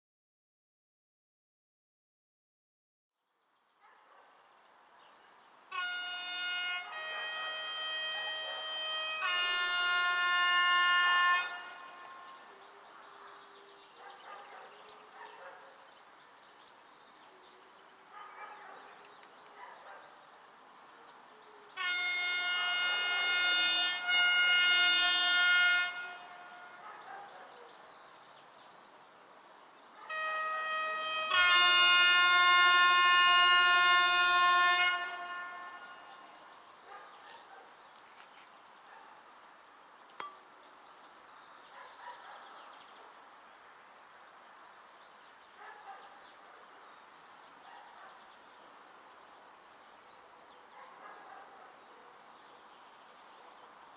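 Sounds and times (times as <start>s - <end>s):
locomotive air horn blasts: 5.7s - 12.6s, 21.8s - 26.8s, 30.1s - 36.4s.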